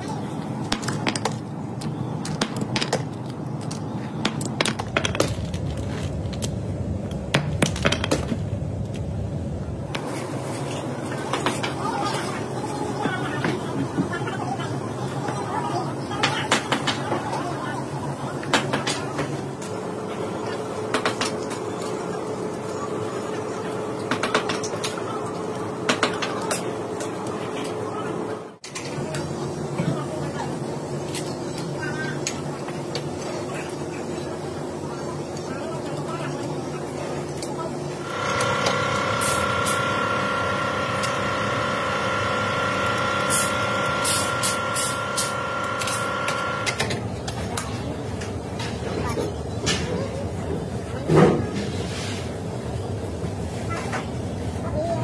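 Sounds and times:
steady low hum: 0:00.0 - 0:55.0
machinery humming: 0:31.6 - 0:48.6.

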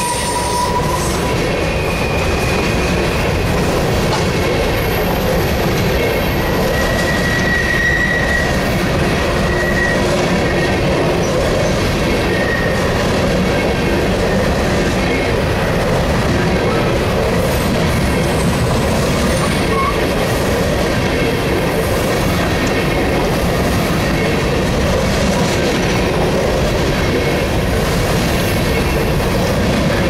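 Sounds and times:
high wheel squeals: 0:00.0 - 0:03.8, 0:04.9 - 0:10.8, 0:12.2 - 0:12.9, 0:18.2 - 0:20.1
steel wheels rumbling on rail: 0:00.0 - 0:30.0.

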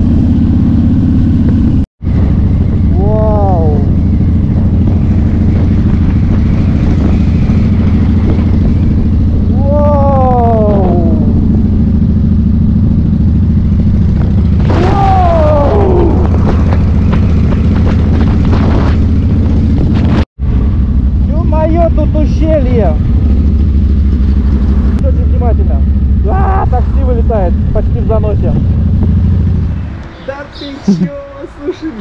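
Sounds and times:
wind rush: 0:00.0 - 0:25.0
motorcycle engine cruising: 0:00.0 - 0:32.0.

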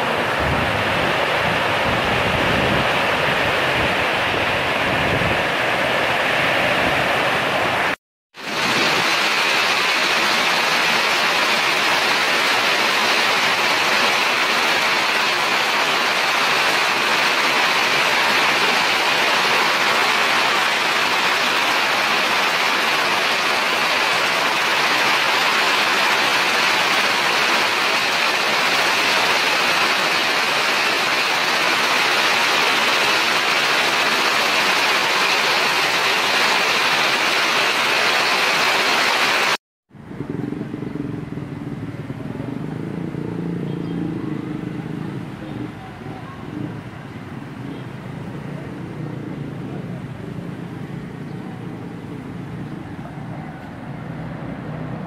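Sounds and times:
heavy rain falling: 0:00.0 - 0:39.6.

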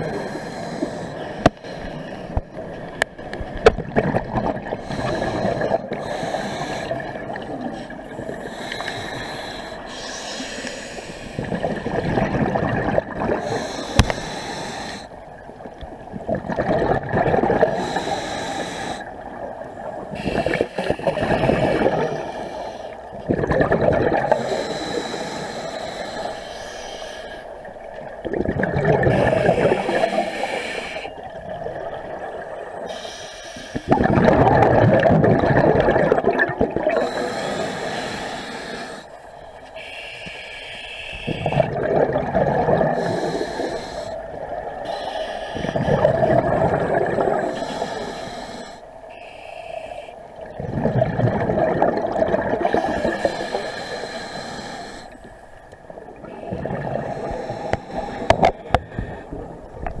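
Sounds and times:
underwater exhaled air bubbling: 0:00.0 - 1:00.0
regulator inhalation: 0:04.8 - 0:11.6, 0:13.4 - 0:15.2, 0:17.8 - 0:19.1, 0:24.3 - 0:27.5, 0:29.0 - 0:31.2, 0:32.9 - 0:34.0, 0:36.9 - 0:42.0, 0:42.6 - 0:50.4, 0:52.7 - 0:55.4, 0:56.3 - 0:59.4.

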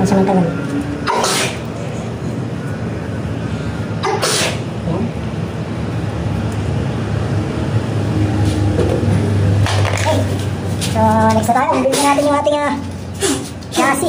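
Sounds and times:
person sneezing: 0:01.1 - 0:01.6, 0:04.0 - 0:04.7, 0:13.2 - 0:13.5.

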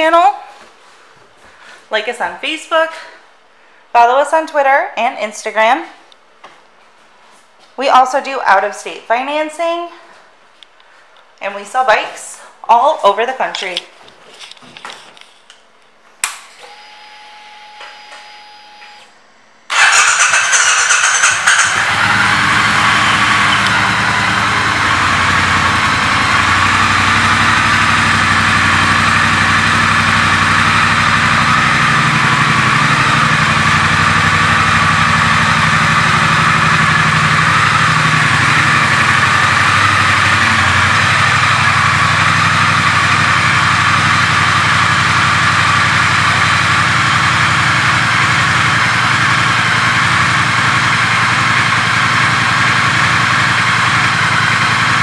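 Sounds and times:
motorcycle engine idling: 0:19.7 - 0:55.0.

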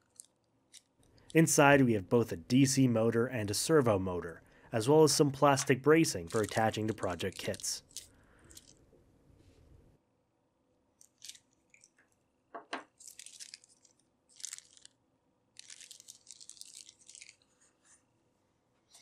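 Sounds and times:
plastic bag crinkling: 0:05.4 - 0:08.8, 0:12.9 - 0:17.8.

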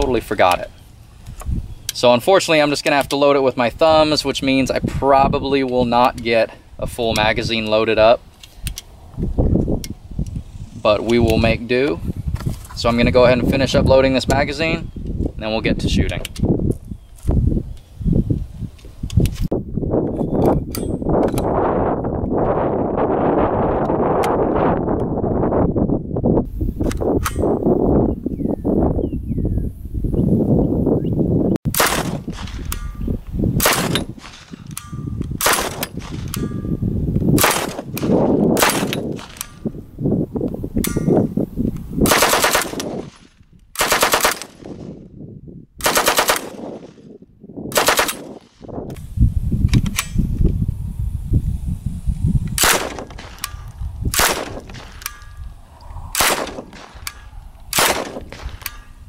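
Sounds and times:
submachine gun firing bursts: 0:37.4 - 0:39.4, 0:42.1 - 0:43.2, 0:43.8 - 0:44.8, 0:45.8 - 0:46.9, 0:47.8 - 0:48.5, 0:57.8 - 0:58.5.

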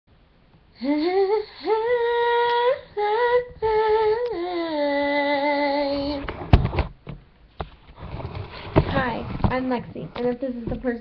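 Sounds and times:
woman singing unaccompanied: 0:00.8 - 0:06.3.

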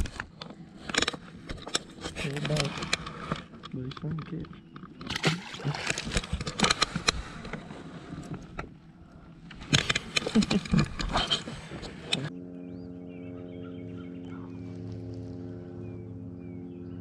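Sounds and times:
electric motor hum: 0:04.6 - 0:17.0.

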